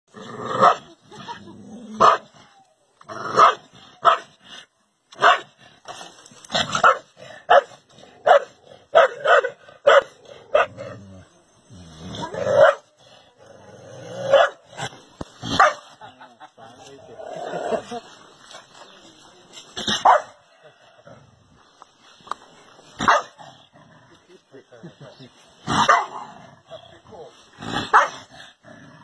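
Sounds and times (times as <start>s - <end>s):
dog barking: 2.0s - 2.2s, 3.4s - 4.3s, 5.2s - 5.5s, 6.8s - 10.8s, 12.6s - 12.8s, 14.3s - 14.6s, 15.5s - 15.8s, 20.0s - 20.4s, 23.0s - 23.4s, 25.8s - 26.2s, 27.9s - 28.2s.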